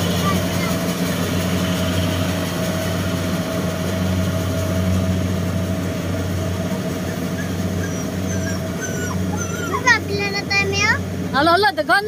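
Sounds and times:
combine harvester engine humming: 0.0s - 12.0s.

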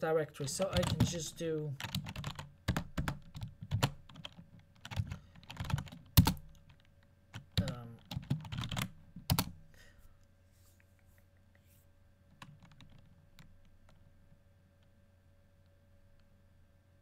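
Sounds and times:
keyboard typing: 0.4s - 9.6s, 12.3s - 14.0s.

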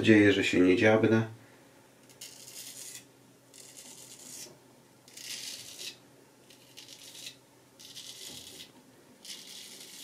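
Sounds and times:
razor scraping stubble: 2.0s - 4.5s, 5.1s - 10.0s.

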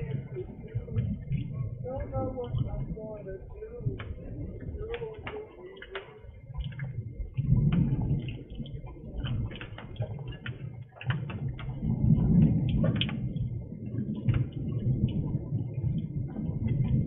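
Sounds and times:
scattered crackles: 0.0s - 17.0s
thunder rumbling: 0.0s - 17.0s.

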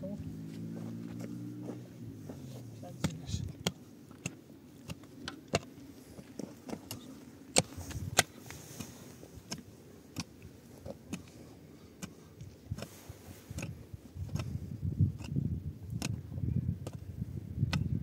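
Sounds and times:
pickaxe striking stony earth: 3.0s - 5.8s, 6.4s - 11.4s, 13.5s - 16.2s.

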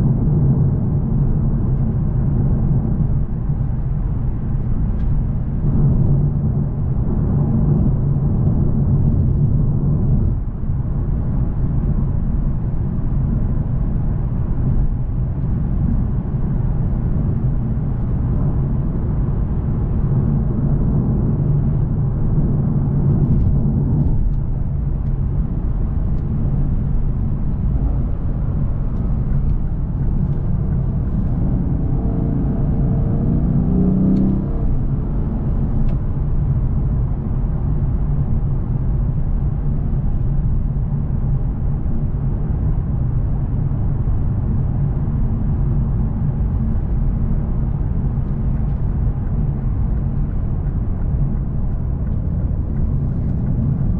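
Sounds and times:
tyre and road rumble: 0.0s - 40.1s, 45.9s - 53.9s
car engine cruising: 0.0s - 41.8s, 43.4s - 53.9s.

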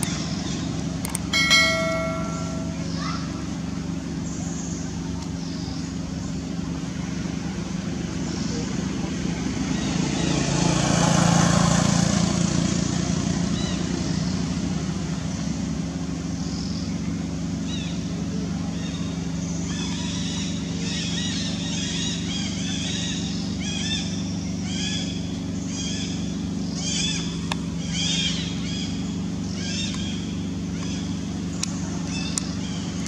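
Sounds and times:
steady low hum: 0.0s - 10.3s
sharp clicks: 1.0s - 1.3s.

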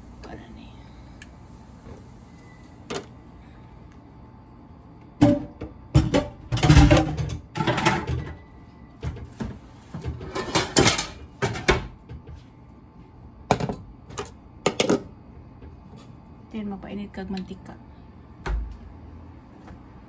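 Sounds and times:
metal pots clattering: 5.2s - 8.4s, 10.0s - 11.9s.

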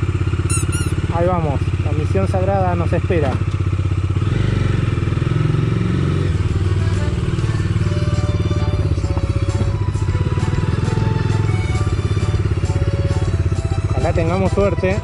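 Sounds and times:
motorcycle engine at low revs: 0.0s - 15.0s
background music: 5.8s - 15.0s.

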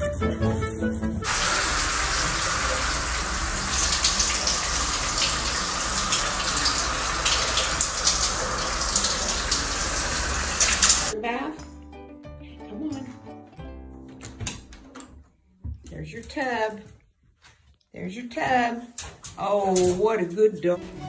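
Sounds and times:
running water hissing: 1.2s - 11.2s.

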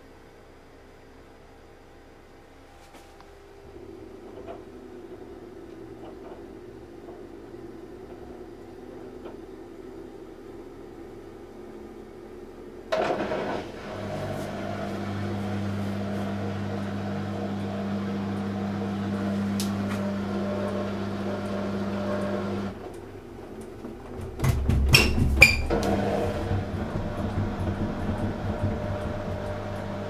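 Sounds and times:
washing machine humming: 0.0s - 30.0s
loud knocks: 23.9s - 29.8s.

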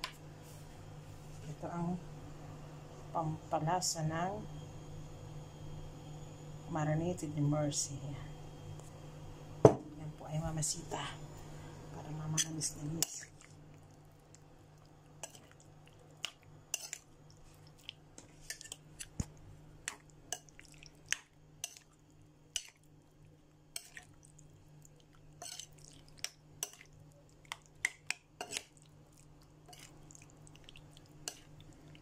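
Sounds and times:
low steady hum: 0.0s - 32.0s
wet squishing of meat: 13.1s - 32.0s.

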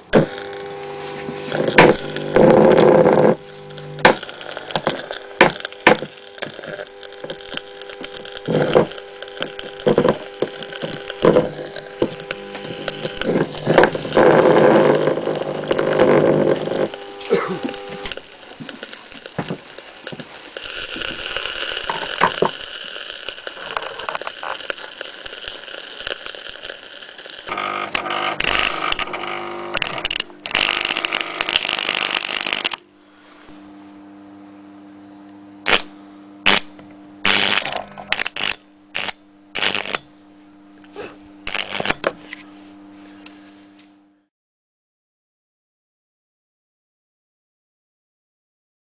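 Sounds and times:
electric motor whining: 0.0s - 33.6s
motor hissing: 0.0s - 33.6s, 35.7s - 40.1s
sharp cracks: 1.5s - 29.1s, 29.8s - 32.8s, 35.6s - 40.1s.

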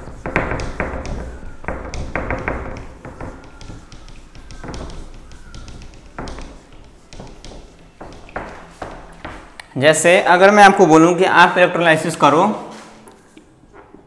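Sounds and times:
duster scrubbing a whiteboard: 0.0s - 9.6s.

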